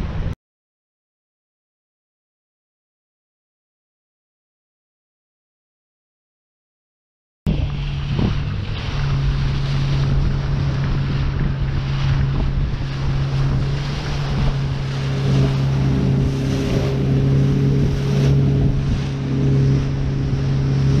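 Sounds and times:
boat engine running: 0.0s - 0.4s, 7.5s - 21.0s
water rushing past hull: 7.5s - 21.0s
wind buffeting microphone: 7.5s - 21.0s.

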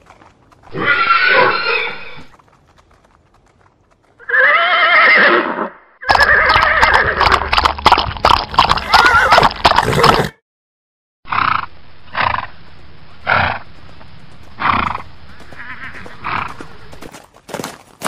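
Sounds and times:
horse calling: 0.2s - 10.3s, 14.5s - 17.1s.

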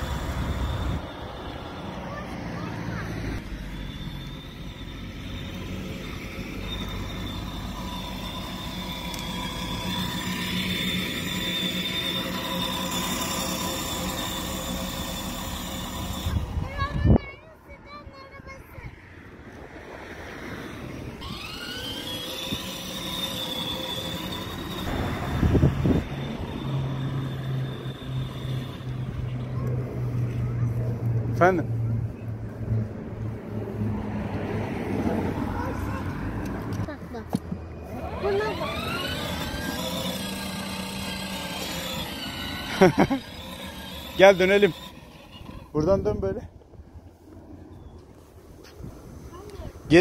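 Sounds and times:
electric motor whine: 0.0s - 2.4s, 3.2s - 16.6s, 21.0s - 30.2s, 37.8s - 46.3s
plastic wheels rumbling on asphalt: 0.0s - 17.5s, 20.7s - 30.9s, 34.3s - 49.9s
road noise: 0.0s - 50.0s.

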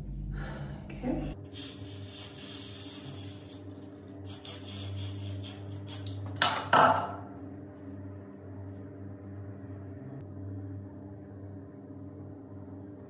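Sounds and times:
hair spray hissing: 1.4s - 6.3s.

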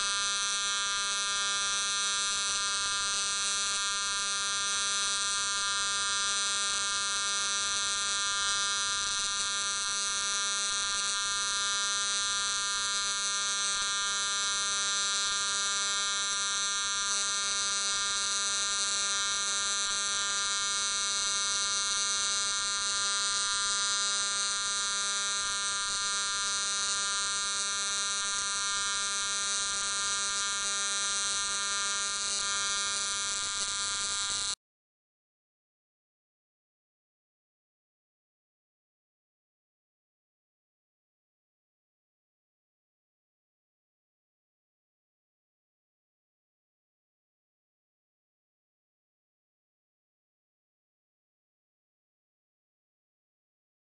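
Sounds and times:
welding arc buzzing and hissing: 0.0s - 34.6s.

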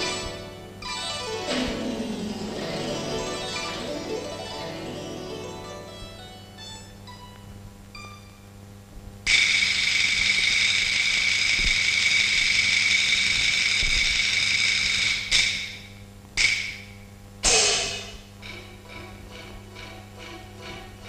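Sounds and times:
cymbal roll: 0.0s - 5.9s, 17.4s - 21.0s
cymbal crashes: 17.4s - 19.1s.

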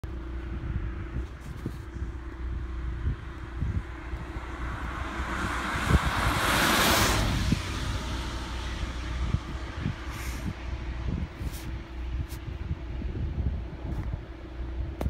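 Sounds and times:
wind rumble on microphone: 0.0s - 15.0s
car tyres hissing on wet road: 4.7s - 10.7s, 11.4s - 12.5s.

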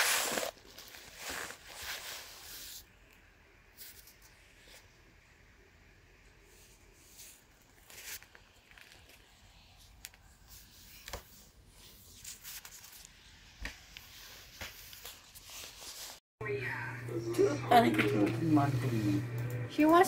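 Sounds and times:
bedding rustling: 0.0s - 2.5s.

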